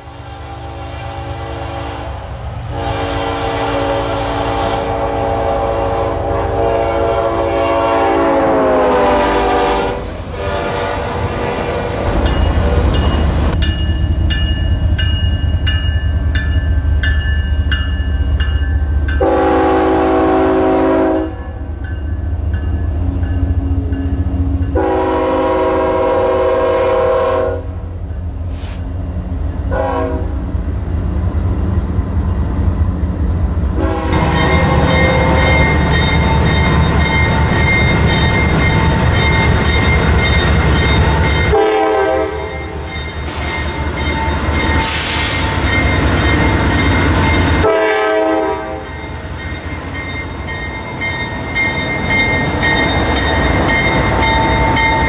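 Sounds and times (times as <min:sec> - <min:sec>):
locomotive engines and wheels rumbling: 0:00.0 - 0:55.0
locomotive horn blasts: 0:00.3 - 0:11.8, 0:19.2 - 0:21.6, 0:24.7 - 0:27.8, 0:29.7 - 0:30.4, 0:33.8 - 0:35.7, 0:41.4 - 0:42.9, 0:47.5 - 0:48.9
ringing bell: 0:34.3 - 0:41.6, 0:42.4 - 0:44.9, 0:48.9 - 0:55.0.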